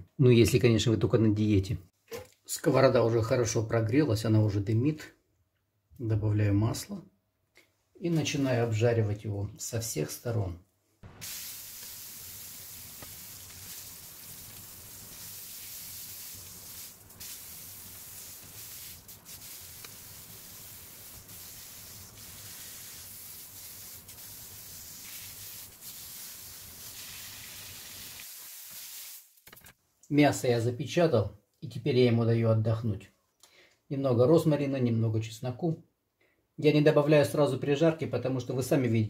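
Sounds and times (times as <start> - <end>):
steak sizzling in a grill pan: 11.2 - 29.2.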